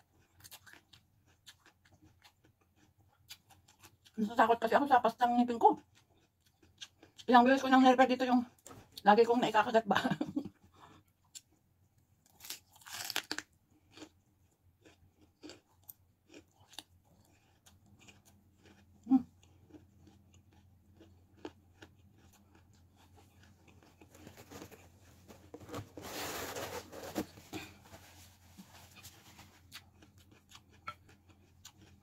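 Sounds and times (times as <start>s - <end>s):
crunchy bites: 12.3s - 14.1s
wet chewing: 14.8s - 25.7s, 29.0s - 32.0s.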